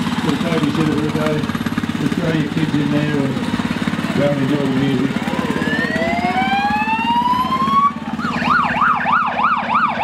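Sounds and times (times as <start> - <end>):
truck engine pulsing: 0.0 - 10.0
fire truck siren wailing and yelping: 5.0 - 10.0.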